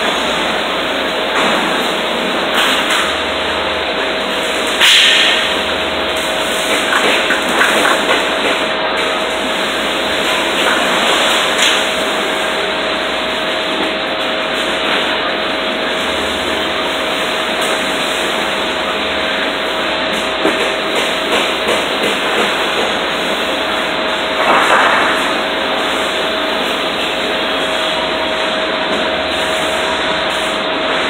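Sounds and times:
steady machine whine: 0.0 - 31.0
machine hiss: 4.4 - 13.8.

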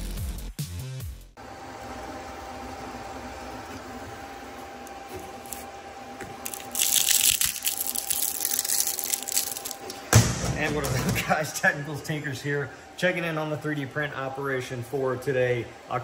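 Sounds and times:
three-d printer humming: 1.4 - 6.5.

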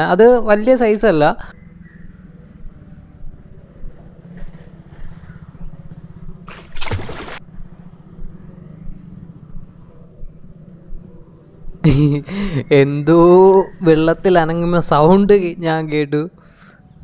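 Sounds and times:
insects droning: 0.0 - 17.0
splash in water: 6.5 - 7.4.

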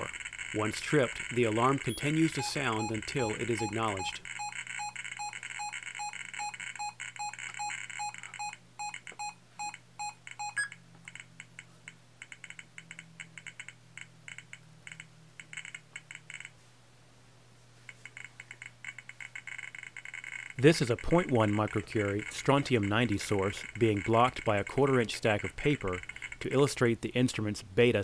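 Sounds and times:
detector chirps: 0.0 - 10.8
rapid electronic alarm beeps: 0.0 - 10.8, 21.3 - 24.5.

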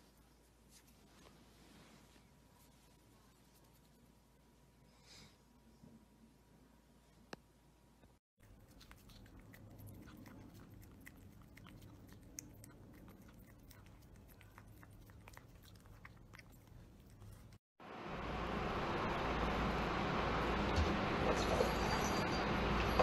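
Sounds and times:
cat licking: 8.4 - 17.7.

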